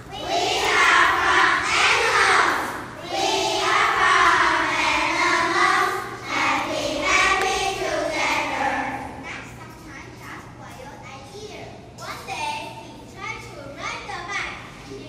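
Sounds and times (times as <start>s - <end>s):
children chanting in unison: 0.0s - 9.2s.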